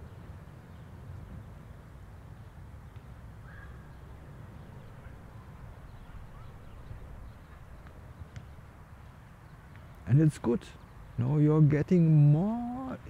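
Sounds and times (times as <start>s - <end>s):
faint bird calls: 2.4s - 11.3s.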